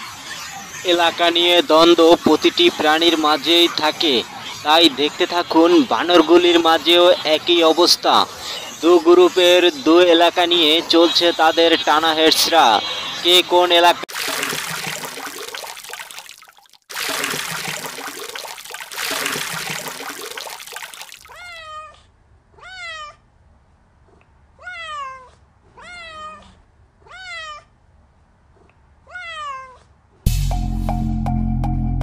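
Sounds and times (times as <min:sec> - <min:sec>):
rushing water: 0:14.0 - 0:21.4
cat meowing: 0:21.3 - 0:22.0, 0:22.6 - 0:23.2, 0:24.6 - 0:27.7, 0:29.0 - 0:29.9.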